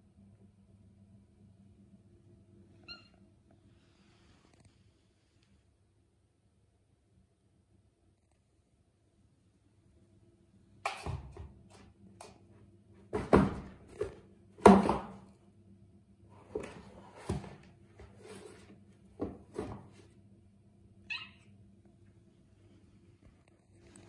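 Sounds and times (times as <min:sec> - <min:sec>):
cardboard boxes thudding and knocking: 0:13.1 - 0:15.3, 0:16.4 - 0:20.0
boxes scraping on rug: 0:16.4 - 0:20.1.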